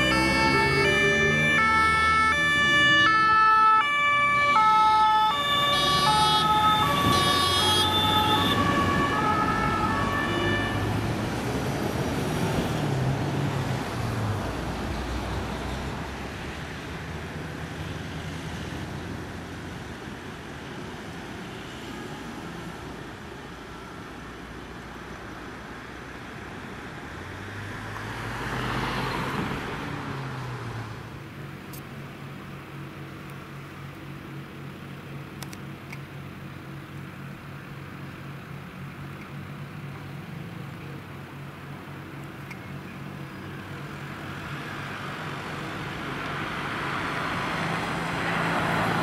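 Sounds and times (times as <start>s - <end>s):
two-tone sirens: 0.0s - 11.4s
road traffic hum: 0.0s - 49.0s
truck engines: 0.0s - 49.0s.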